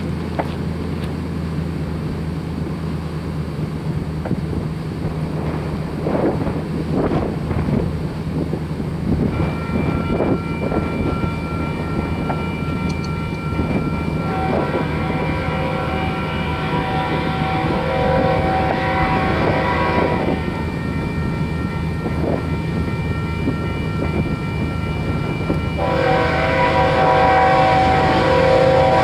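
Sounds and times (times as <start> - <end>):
diesel locomotive drone: 0.0 - 29.0
wind on microphone: 3.9 - 29.0
distant locomotive horn: 9.2 - 29.0.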